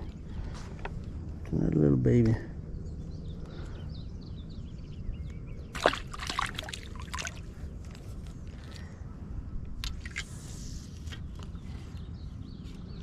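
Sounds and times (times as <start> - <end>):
water splashing and sloshing: 5.7 - 8.0, 9.8 - 10.4.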